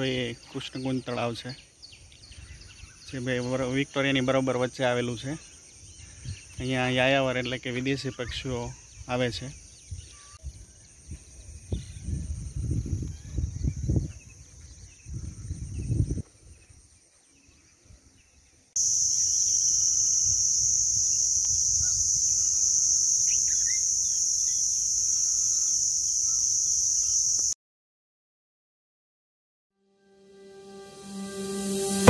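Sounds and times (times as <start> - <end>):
insects buzzing drone: 8.7 - 27.6, 30.3 - 32.0
wind rumbling on microphone: 9.8 - 16.8
short bird chirps: 19.1 - 27.3.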